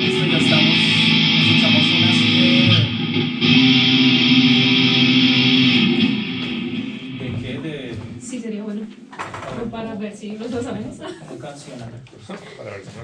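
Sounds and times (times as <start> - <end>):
distorted electric guitar chords: 0.0 - 8.2.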